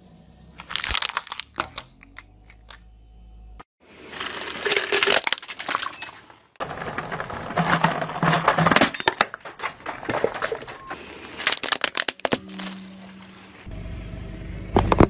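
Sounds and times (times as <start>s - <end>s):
plastic crackling under car tyre: 0.6s - 2.3s, 4.0s - 13.7s
low steady hum: 11.0s - 15.0s.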